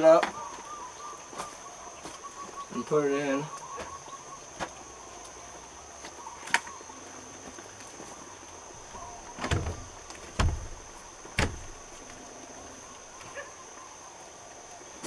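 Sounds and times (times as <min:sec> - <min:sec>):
window frame thumping on wall: 0:08.9 - 0:12.0.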